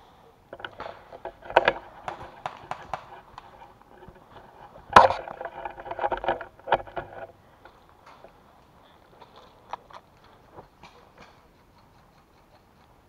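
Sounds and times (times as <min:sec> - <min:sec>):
loud crack: 0:00.5 - 0:03.8
sharp clicks and knocks: 0:00.5 - 0:13.0.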